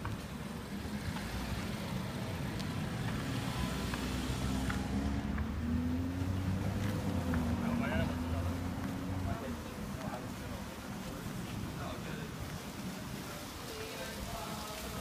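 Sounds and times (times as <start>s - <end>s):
car engine low hum: 0.6s - 10.2s.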